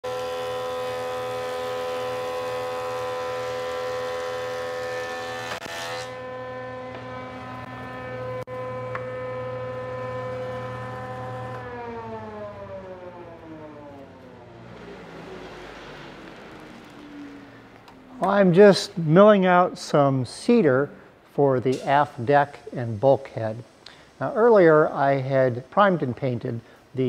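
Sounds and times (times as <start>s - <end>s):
planer blades cutting wood: 0.0s - 17.4s
thickness planer whining: 0.0s - 18.4s.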